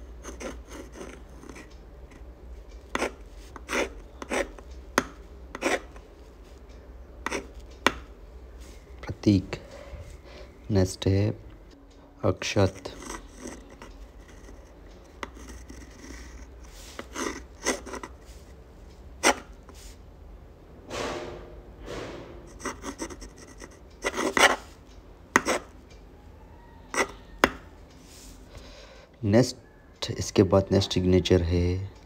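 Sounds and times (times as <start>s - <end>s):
pen nib scratching paper: 0.2s - 2.2s, 2.9s - 4.6s, 5.5s - 6.0s, 7.2s - 7.6s, 12.7s - 18.4s, 19.2s - 19.5s, 22.5s - 24.7s, 25.4s - 25.7s.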